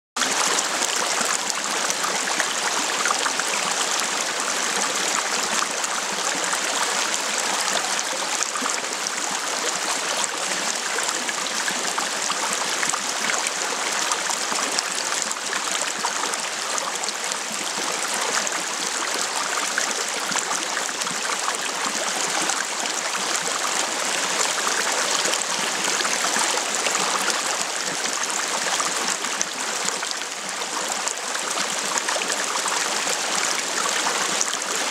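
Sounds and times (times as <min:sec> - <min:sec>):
stream running over stones: 0:00.2 - 0:34.9.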